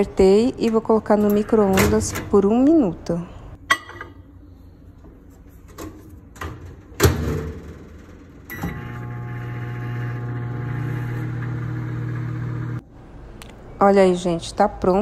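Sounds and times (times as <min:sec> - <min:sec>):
microwave oven humming: 0:07.1 - 0:12.8.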